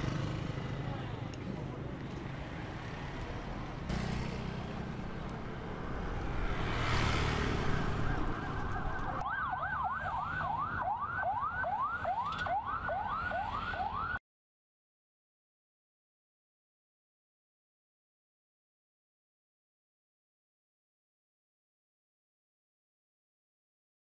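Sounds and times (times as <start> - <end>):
street traffic engines: 0.0 - 14.2
vehicle passing: 2.2 - 10.6
emergency siren wailing: 7.0 - 14.2.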